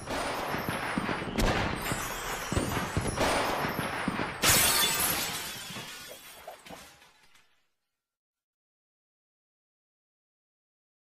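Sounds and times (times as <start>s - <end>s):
shattering clatter: 1.8s - 7.6s.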